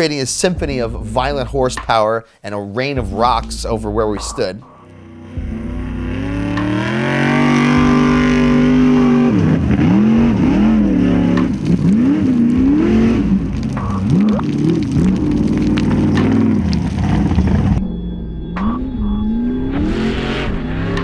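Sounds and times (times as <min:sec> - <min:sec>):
racing engine revving: 0:04.9 - 0:17.8, 0:18.6 - 0:21.0.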